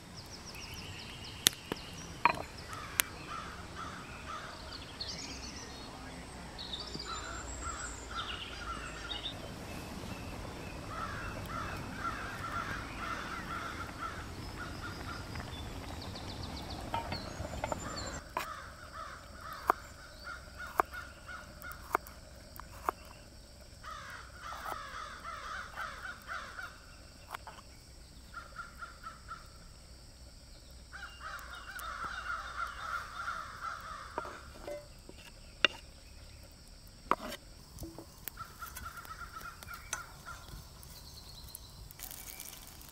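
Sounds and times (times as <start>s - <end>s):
crows cawing: 2.6s - 4.7s, 10.9s - 15.6s, 16.9s - 21.9s, 23.8s - 26.8s, 30.9s - 34.5s, 38.3s - 40.5s.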